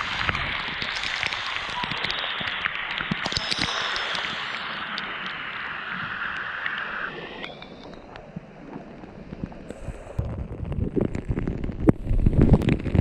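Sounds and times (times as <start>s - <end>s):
rush of falling water: 0.0s - 8.1s.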